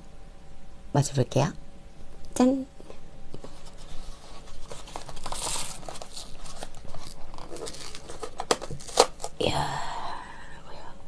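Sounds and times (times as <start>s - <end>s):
paper carton scraping and tearing: 3.5s - 9.3s.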